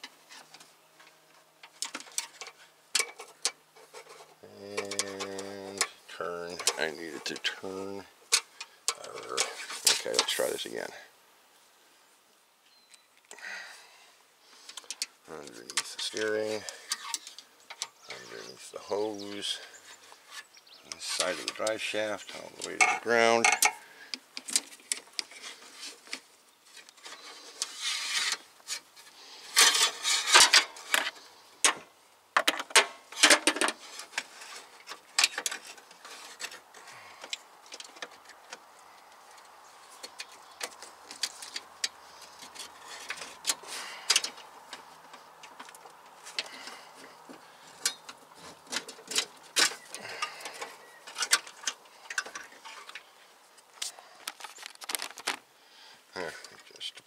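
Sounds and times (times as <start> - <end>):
metal line clicking and tapping: 22.6 - 25.3.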